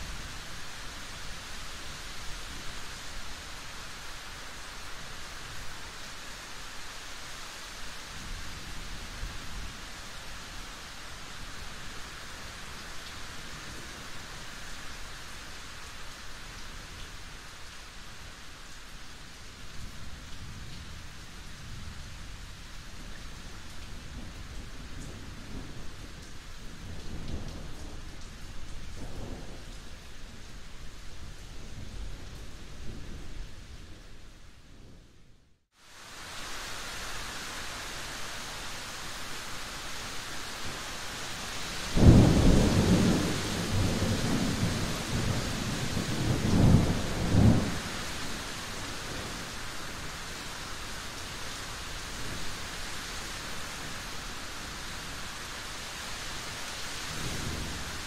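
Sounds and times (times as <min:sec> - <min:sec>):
steady rain: 0:00.0 - 0:58.0
thunder rumbling: 0:41.9 - 0:48.0.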